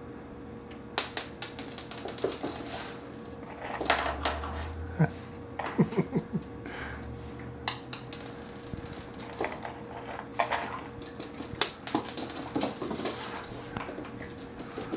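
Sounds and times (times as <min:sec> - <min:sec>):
dog claws clicking on hardwood floor: 0:10.4 - 0:14.9.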